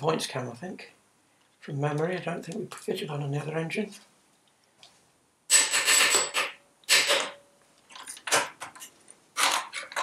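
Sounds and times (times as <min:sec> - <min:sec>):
impact gun bursts: 0:05.5 - 0:07.4.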